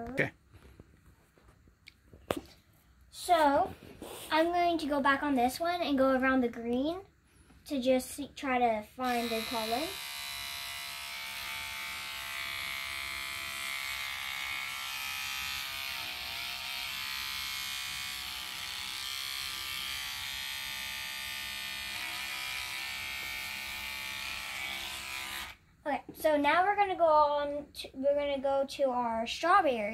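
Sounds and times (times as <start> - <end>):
electric toothbrush buzzing: 9.0 - 25.7.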